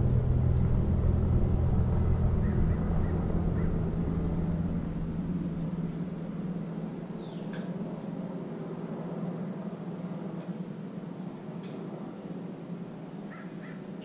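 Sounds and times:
low engine rumble: 0.0 - 10.4.

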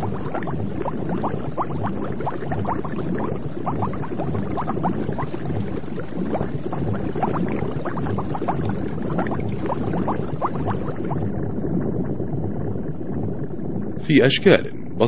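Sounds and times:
underwater bubbling: 0.0 - 14.1
low water rumble: 0.0 - 15.0.

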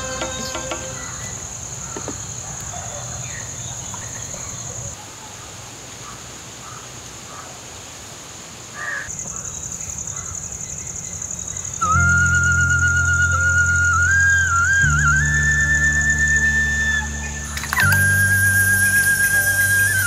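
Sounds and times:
high-pitched insect buzz: 11.4 - 20.0.

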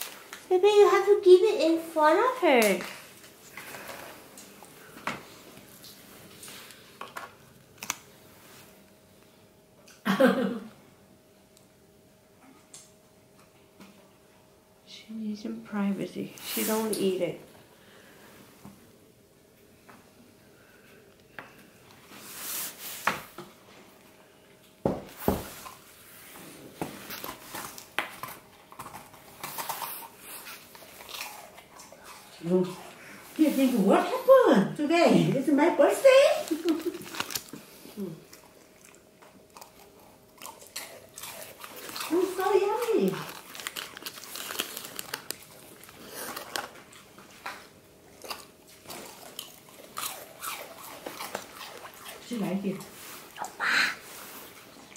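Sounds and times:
puppy chewing crunchy snack: 27.0 - 33.6, 36.4 - 53.6.

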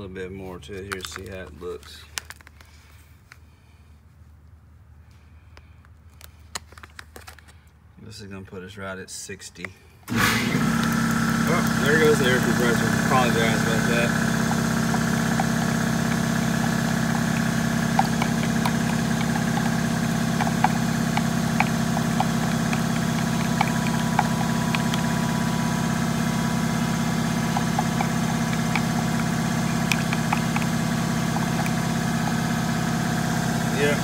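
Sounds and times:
air compressor humming: 10.1 - 34.0
stir stick ticking on plastic cup: 11.8 - 32.6.

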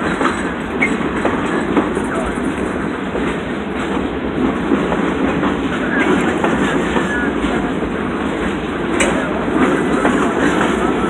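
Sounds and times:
train wheels on rails: 0.0 - 11.0.

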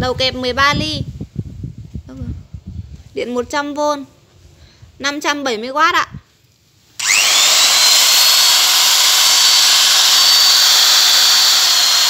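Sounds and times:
electric drill whining: 7.0 - 12.0.

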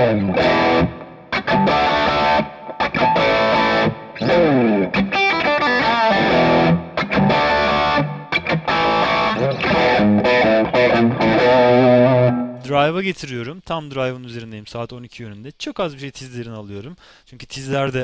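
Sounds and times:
distorted electric guitar riffs: 0.0 - 12.8.

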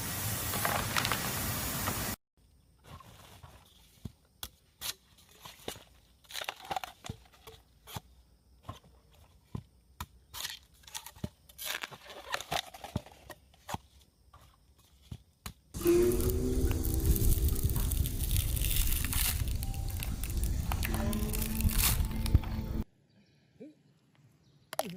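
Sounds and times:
knife cutting bamboo: 10.0 - 13.9, 17.5 - 22.4.

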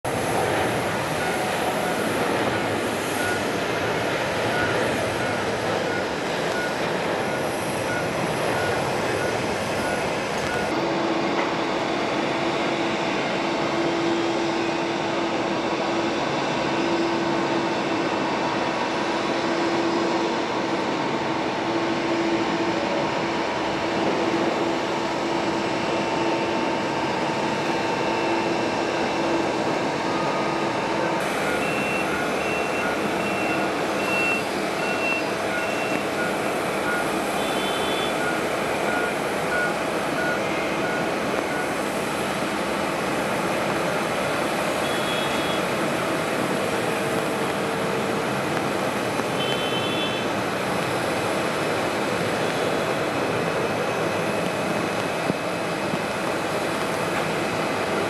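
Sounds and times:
jet engines whining: 0.0 - 58.0
short repeated beeps: 3.1 - 10.7, 31.4 - 41.8.

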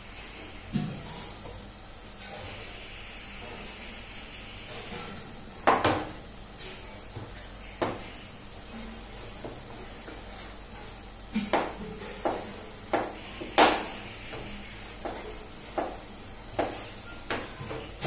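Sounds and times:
onions frying hiss: 0.0 - 18.0
knife knocking on cutting board: 15.0 - 16.0, 16.6 - 17.5.

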